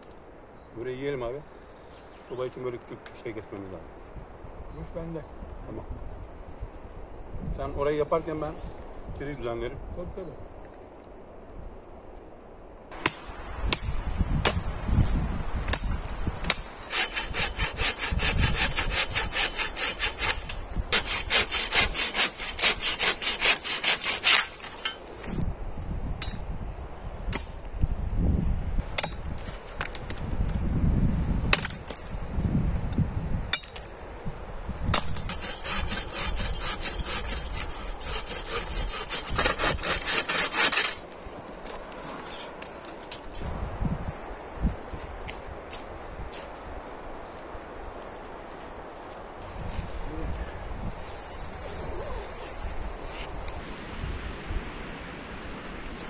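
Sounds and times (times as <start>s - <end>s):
hand saw cutting wood: 15.7s - 25.4s, 34.9s - 41.1s.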